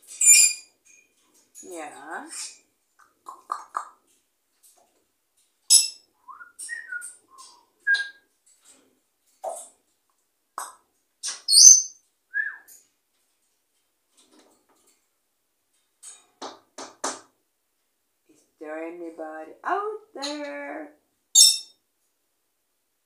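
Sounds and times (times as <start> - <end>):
parrot whistling and chirping: 0.2 - 0.7, 5.7 - 8.2, 11.3 - 12.7.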